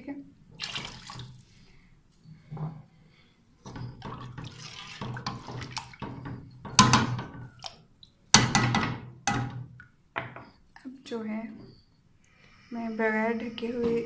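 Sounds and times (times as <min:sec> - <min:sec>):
water pouring into a pot: 0:00.6 - 0:01.5, 0:03.7 - 0:07.8.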